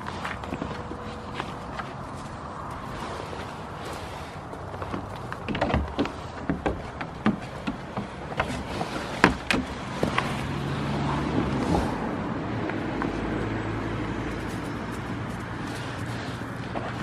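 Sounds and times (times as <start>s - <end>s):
low engine hum: 0.0s - 17.0s
hoof taps on wooden roof: 4.6s - 10.5s.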